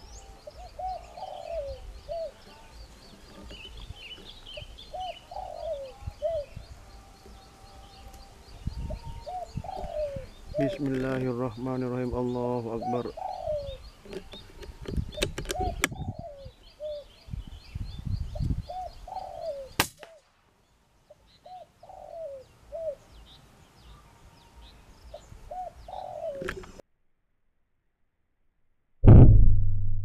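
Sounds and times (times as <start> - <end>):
pigeons cooing: 0.0 - 17.2, 18.3 - 19.8, 21.1 - 23.1, 25.1 - 26.8
small birds chirping: 0.0 - 26.8
sharp crack: 19.8 - 20.5.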